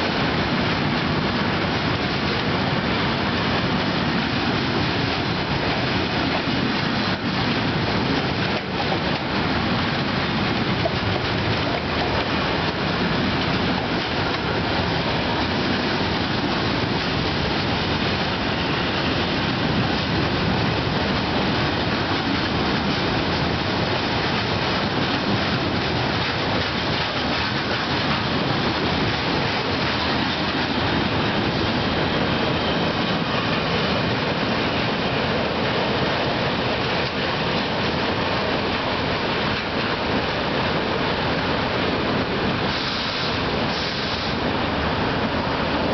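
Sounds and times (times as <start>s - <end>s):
train wheels running on track: 0.0s - 45.9s.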